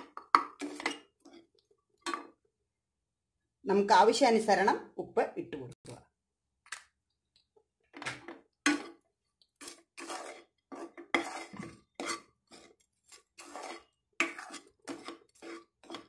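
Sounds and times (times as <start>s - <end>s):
spatula scraping rice in pan: 0.5s - 1.5s, 8.7s - 9.0s, 9.6s - 16.0s.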